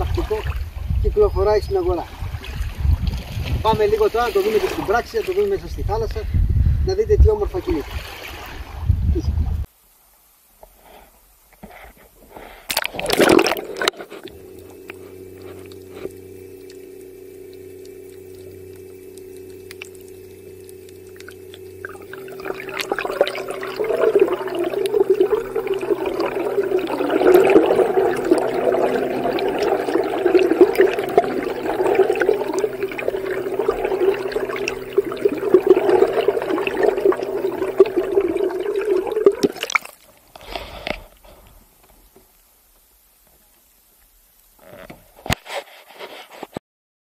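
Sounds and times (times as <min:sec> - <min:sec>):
electric motor whine underwater: 0:12.7 - 0:39.8
rushing bubbling water: 0:12.7 - 0:40.0.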